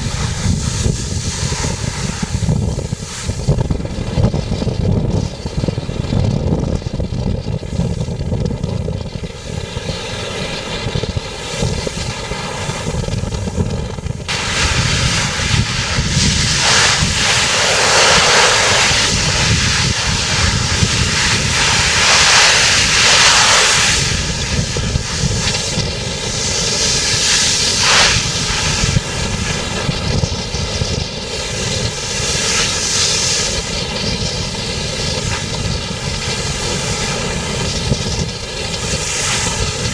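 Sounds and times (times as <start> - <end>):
rushing hiss: 0.0 - 4.1, 14.2 - 39.9
ship's engine drone: 0.0 - 39.9
wind buffeting on microphone: 0.0 - 39.9.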